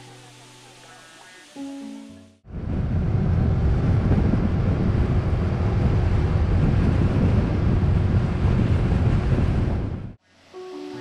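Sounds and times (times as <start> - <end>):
faint engine hum: 2.5 - 10.1
wind buffeting microphone: 2.5 - 10.2.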